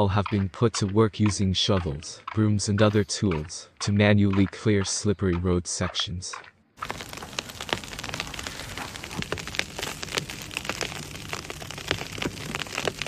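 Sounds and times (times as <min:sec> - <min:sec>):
ice crackling with sharp clicks: 0:05.8 - 0:13.0
steady hiss: 0:06.8 - 0:13.0.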